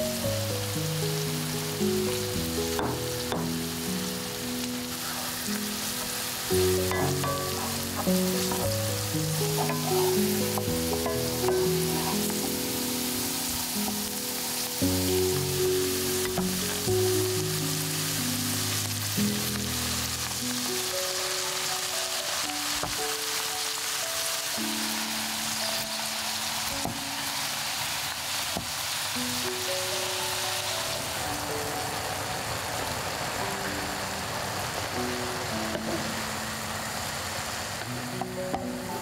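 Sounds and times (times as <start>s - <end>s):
slow low background music: 0.0s - 27.4s
onions sizzling in a pan: 0.0s - 39.0s.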